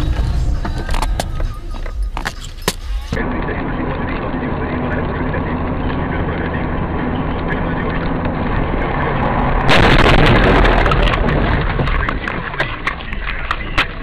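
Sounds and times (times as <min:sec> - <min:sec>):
loud crashing noise: 0:00.0 - 0:01.6, 0:09.4 - 0:13.0
car road and engine noise: 0:00.0 - 0:14.0.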